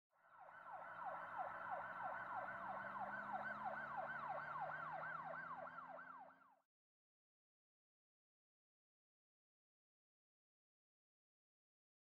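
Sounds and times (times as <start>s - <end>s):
siren falling sweep: 0.5s - 6.3s.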